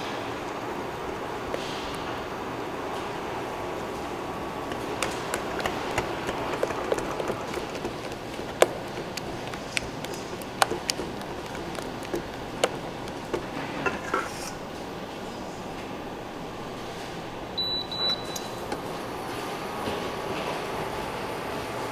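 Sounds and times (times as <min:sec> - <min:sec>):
utensils and bowls clinking: 0:04.0 - 0:14.8.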